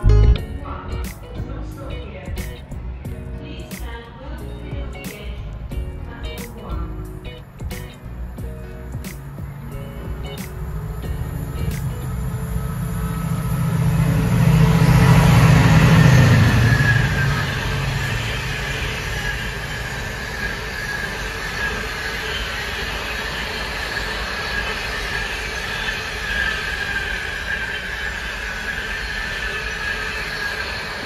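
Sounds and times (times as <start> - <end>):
locomotive rumble: 0.0 - 31.0
high wheel squeal: 7.0 - 31.0.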